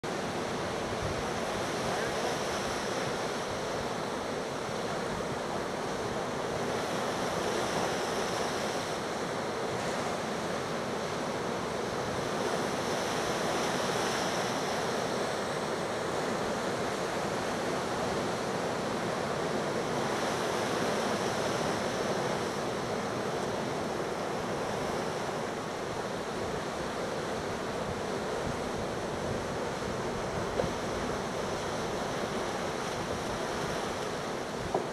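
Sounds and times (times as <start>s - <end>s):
surf breaking on beach: 0.0s - 34.9s.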